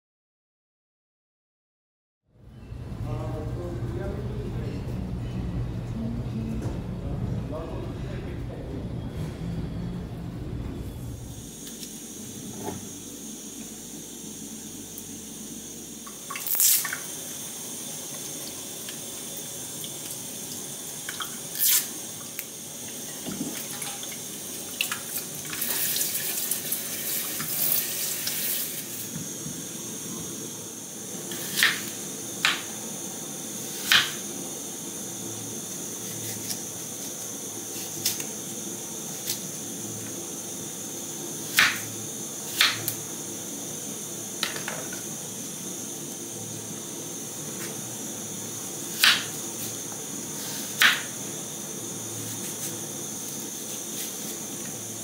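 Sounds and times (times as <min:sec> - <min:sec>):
tap water running into sink: 0:22.3 - 0:28.4.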